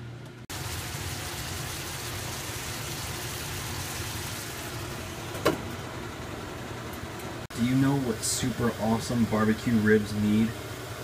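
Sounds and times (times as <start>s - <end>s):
meat sizzling in frying pan: 0.5s - 5.0s.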